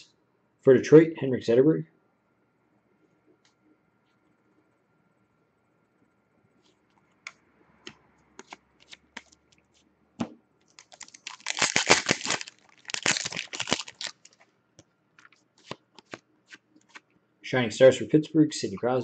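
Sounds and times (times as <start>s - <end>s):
foil wrapper crumpling and tearing: 10.7s - 14.4s
trading cards clicking: 15.2s - 16.2s.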